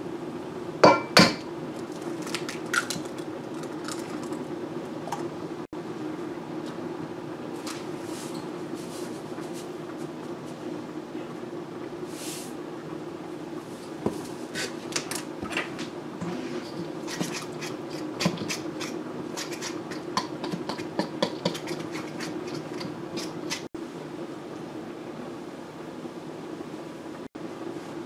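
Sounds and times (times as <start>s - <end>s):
steady low hum: 0.0s - 28.0s
fork scraping a metal bowl: 16.2s - 23.7s.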